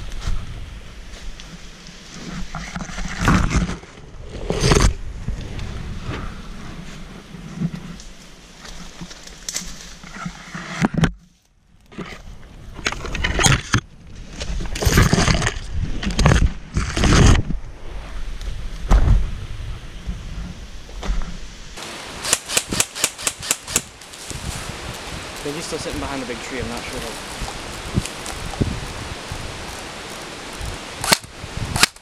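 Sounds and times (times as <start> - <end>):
rustling through ferns and branches: 0.0 - 32.0
footsteps: 20.1 - 31.2
rubbing on camera microphone: 24.4 - 30.8.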